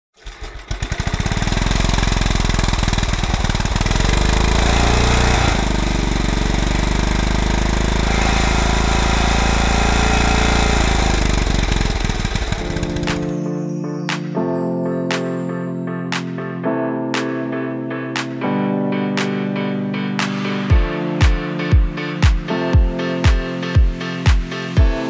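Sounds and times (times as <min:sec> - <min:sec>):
small mower engine running: 0:00.2 - 0:13.3.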